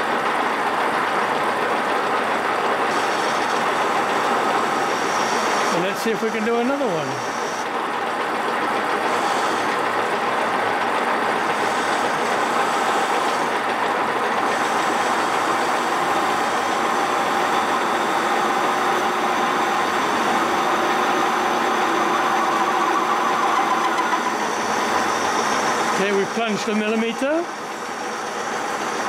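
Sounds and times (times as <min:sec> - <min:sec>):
metal lathe cutting: 0:00.1 - 0:29.0.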